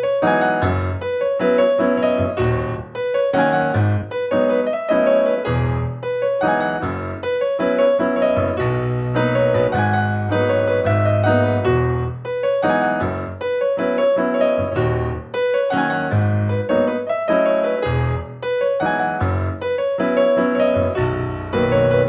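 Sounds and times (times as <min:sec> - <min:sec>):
keyboard notes in steady rhythm: 0:00.0 - 0:22.0
held low bass notes: 0:08.5 - 0:12.2, 0:21.0 - 0:22.0.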